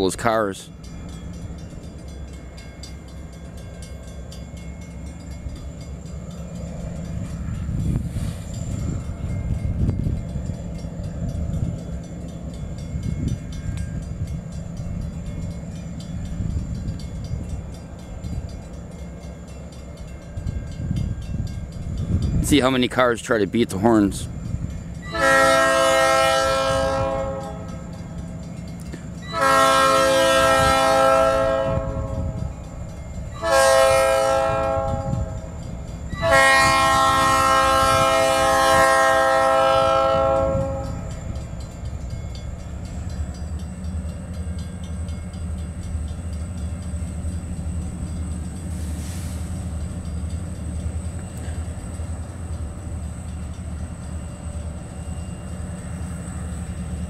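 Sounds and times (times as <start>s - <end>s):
locomotive horn blasts: 25.0s - 27.9s, 29.2s - 32.5s, 33.3s - 41.2s.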